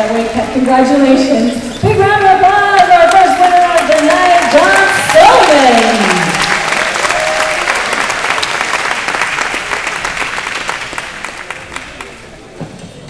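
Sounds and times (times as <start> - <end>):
crowd applauding and cheering: 2.8 - 12.6.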